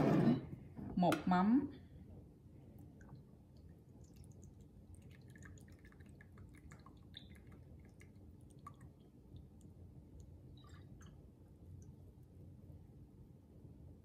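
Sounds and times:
low room hum: 0.0 - 14.0
liquid dripping into cup: 2.8 - 12.2.

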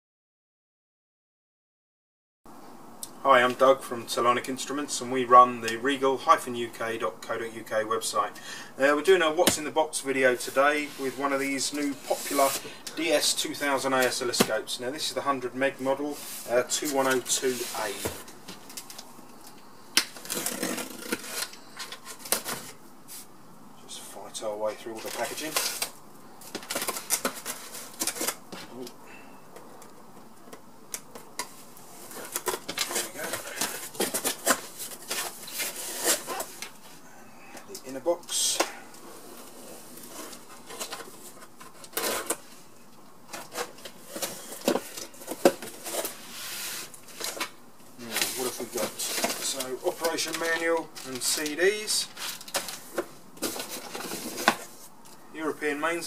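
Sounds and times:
cardboard rustling and scraping: 10.2 - 19.0, 20.1 - 23.3, 24.7 - 28.8, 31.2 - 37.0, 38.4 - 42.7, 43.3 - 54.9
rustling: 15.7 - 23.3, 43.3 - 55.2.

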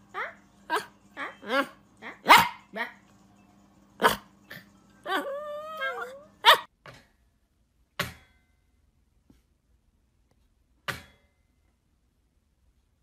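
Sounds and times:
dog whining howl: 0.1 - 2.5, 5.0 - 6.7
dog barking: 0.7 - 2.9, 4.0 - 4.3, 6.4 - 6.7.

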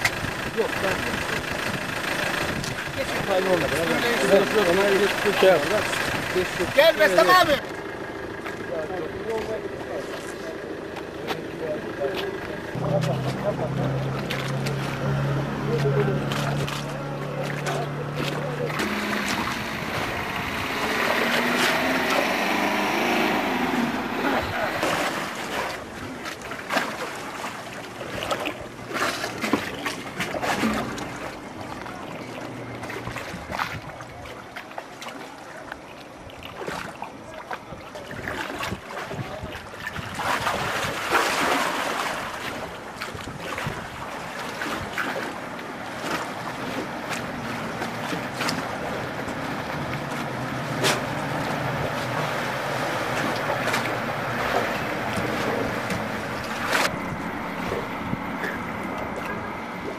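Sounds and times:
boat motor running: 0.0 - 59.9
wind buffeting microphone: 42.5 - 45.0.

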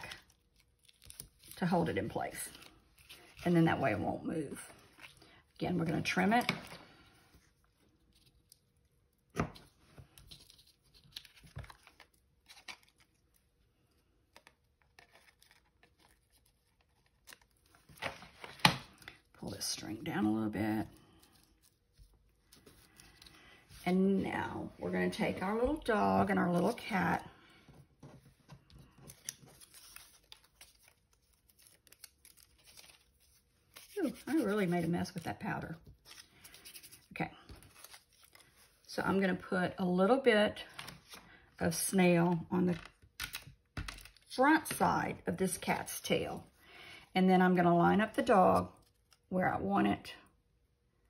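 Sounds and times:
paper and ribbon rustling: 28.0 - 38.9.

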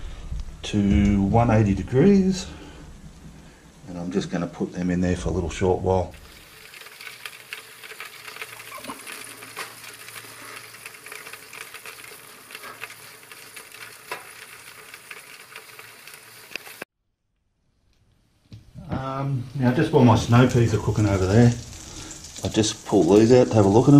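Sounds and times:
sauce sizzling and crackling: 6.1 - 16.9, 19.5 - 23.9
oven humming: 6.2 - 16.8.

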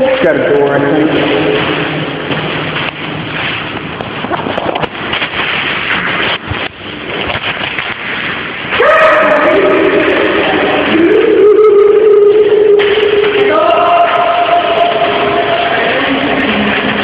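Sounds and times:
steady rushing noise: 0.0 - 17.0
person singing: 10.7 - 16.9.

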